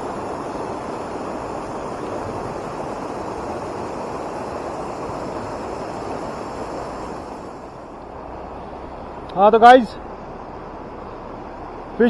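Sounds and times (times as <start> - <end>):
stream water flowing: 0.0 - 12.0.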